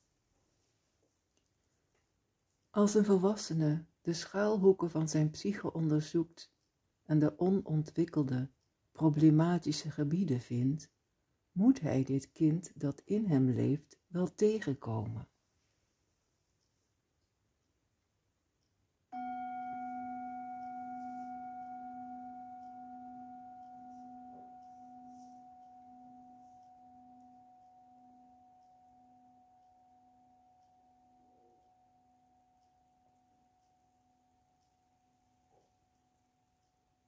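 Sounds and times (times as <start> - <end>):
metal singing bowl ringing: 19.2 - 32.6.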